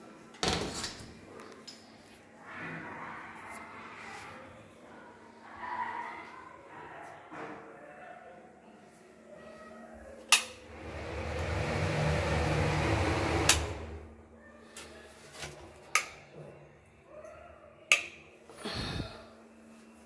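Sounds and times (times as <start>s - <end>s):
exhaust fan humming: 10.7s - 14.2s.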